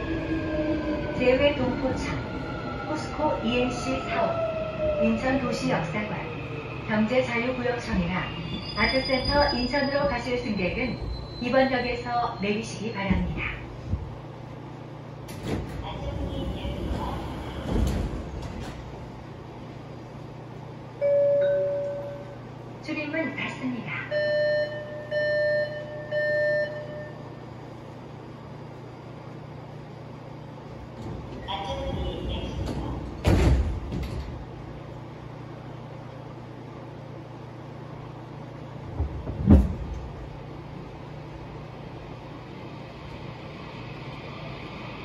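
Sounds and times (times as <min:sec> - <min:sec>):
subway car low hum: 0:00.0 - 0:45.0
subway doors thudding shut: 0:13.0 - 0:14.3, 0:15.2 - 0:19.5, 0:30.8 - 0:34.8, 0:38.8 - 0:44.5.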